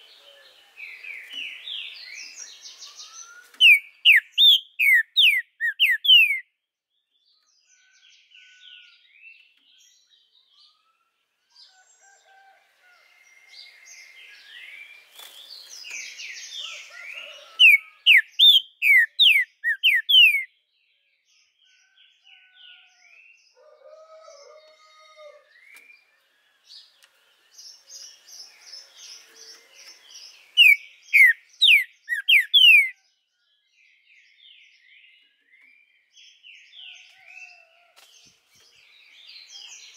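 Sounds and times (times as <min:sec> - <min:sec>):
soft bird chirps and warbles: 0:00.0 - 0:39.9
bird singing whistled phrases: 0:02.8 - 0:06.4, 0:17.6 - 0:20.5, 0:30.6 - 0:33.0.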